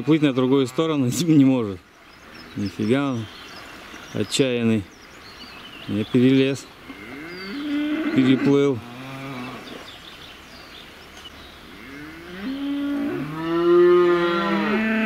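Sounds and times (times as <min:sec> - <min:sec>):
river rushing: 0:00.0 - 0:06.9
cattle mooing: 0:06.9 - 0:09.7, 0:11.7 - 0:15.0.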